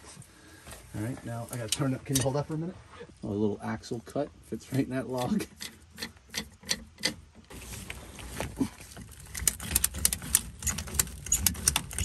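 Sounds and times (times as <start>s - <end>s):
ratchet strap clicking: 9.0s - 12.0s.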